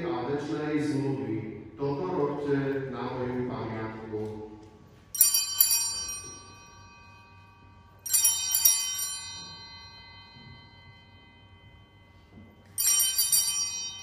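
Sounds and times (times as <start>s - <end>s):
small altar bells ringing: 4.2s - 14.0s.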